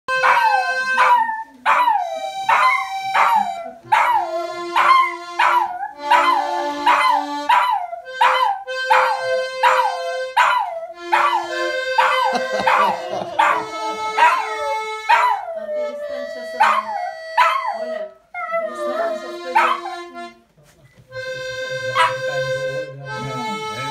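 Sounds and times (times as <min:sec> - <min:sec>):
button accordion: 0:00.1 - 0:01.1, 0:02.0 - 0:18.1, 0:18.7 - 0:20.4, 0:21.1 - 0:23.9.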